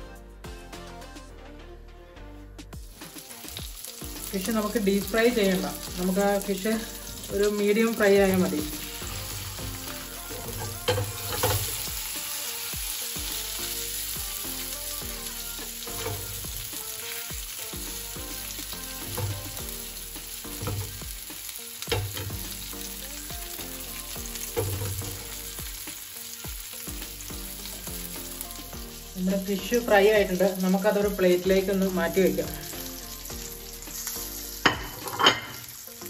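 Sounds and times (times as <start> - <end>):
fish sizzling in frying pan: 2.8 - 36.0
spatula scraping a pan: 8.4 - 12.6.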